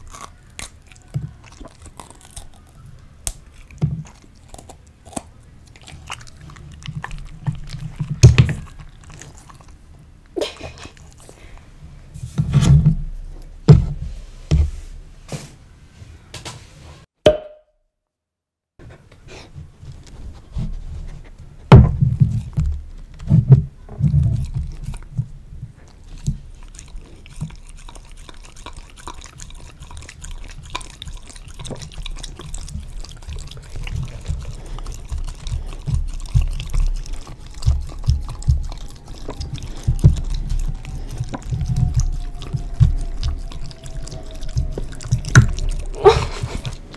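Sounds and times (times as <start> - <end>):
dog lapping yogurt: 5.9 - 9.8, 25.9 - 46.9.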